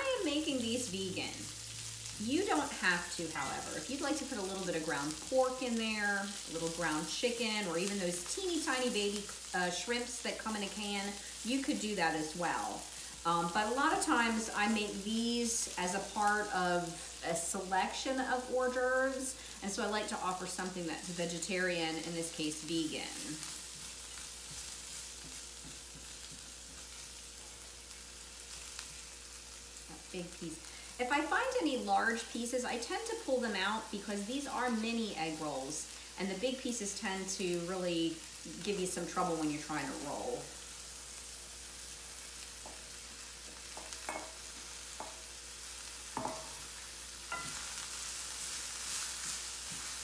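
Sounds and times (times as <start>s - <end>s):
vegetables sizzling in oil: 0.0s - 50.0s
wooden spoon scraping a pan: 46.1s - 50.0s.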